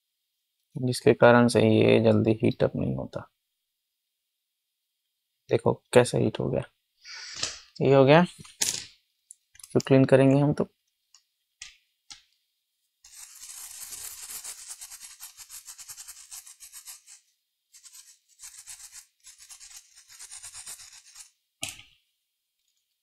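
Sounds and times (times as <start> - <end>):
brush scrubbing circuit board: 13.0 - 21.4.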